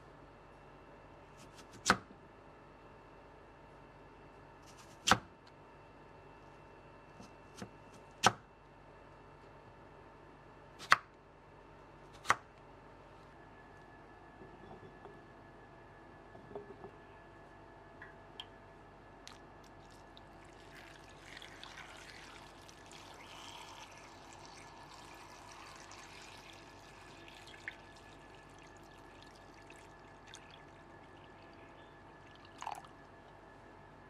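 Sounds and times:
water splashing into bowl: 19.3 - 33.0.

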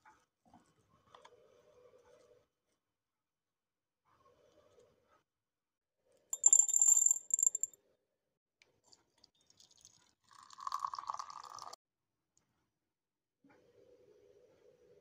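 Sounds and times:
clinking rattle against glass: 6.4 - 7.8
water pouring into glass jar: 9.5 - 11.8.

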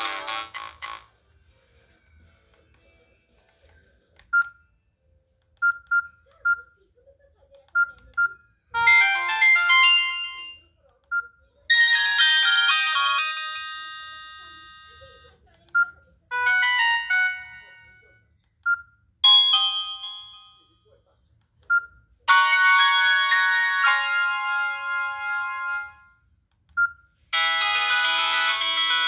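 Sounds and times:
phone keypad beeps: 4.3 - 4.6, 5.6 - 6.7, 14.5 - 16.0, 18.6 - 18.9, 26.7 - 27.0.

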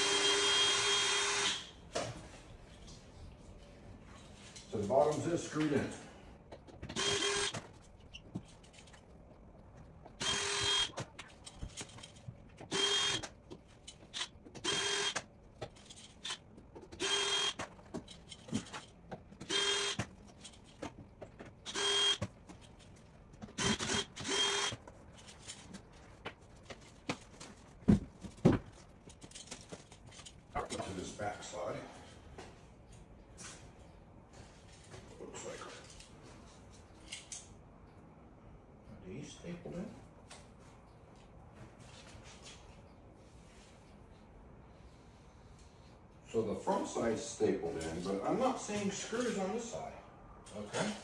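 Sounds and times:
cordless drill whining: 0.0 - 1.7, 6.9 - 7.6, 10.2 - 11.0, 12.7 - 13.2, 14.2 - 15.2, 17.0 - 17.6, 19.4 - 20.0, 21.7 - 22.2, 23.6 - 24.8.

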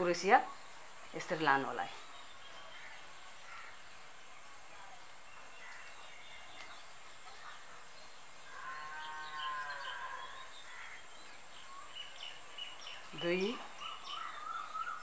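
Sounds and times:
steady high hiss: 0.0 - 15.0
wavering animal call: 8.5 - 10.5.

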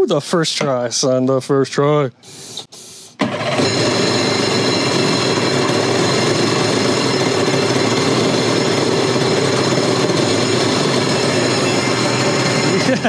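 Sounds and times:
two-stroke engine running: 3.2 - 13.0.

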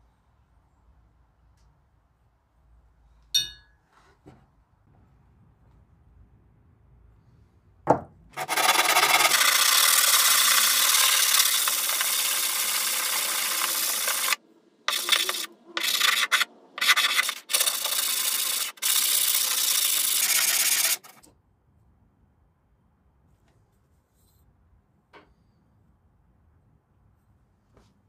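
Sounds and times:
sanding scratching: 8.4 - 21.2.

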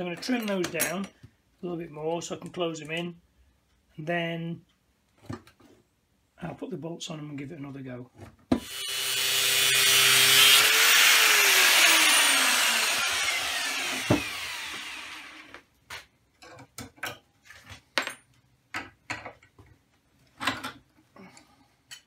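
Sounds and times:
power grinder cutting metal: 8.6 - 15.5.

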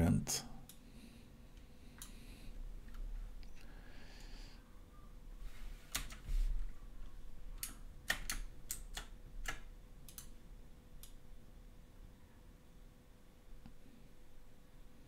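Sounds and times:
keyboard and mouse clicks: 5.9 - 6.3, 7.6 - 10.4.

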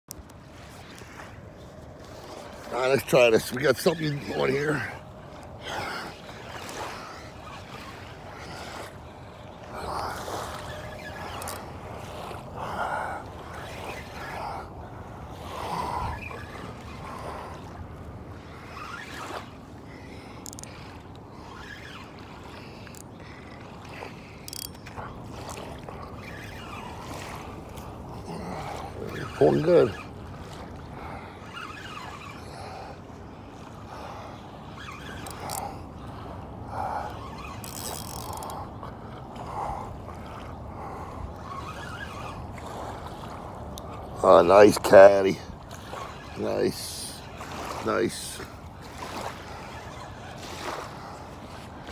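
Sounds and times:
fishing reel clicking: 10.7 - 11.6, 20.4 - 20.9, 22.7 - 23.2, 24.4 - 25.6, 34.8 - 35.8, 37.0 - 38.6.

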